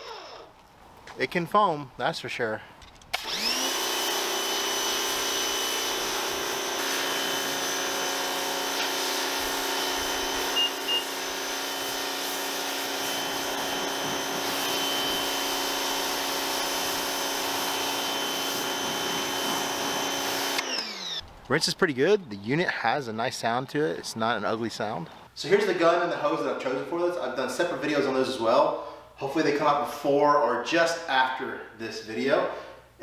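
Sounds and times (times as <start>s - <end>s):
pressure washer motor whining: 0.0s - 0.6s, 3.1s - 21.2s.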